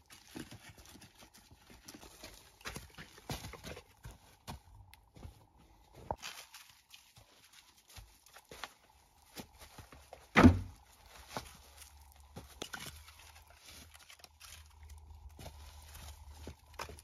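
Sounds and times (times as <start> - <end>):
firewood logs knocking: 9.9 - 10.8
loud wooden thud: 10.4 - 10.8.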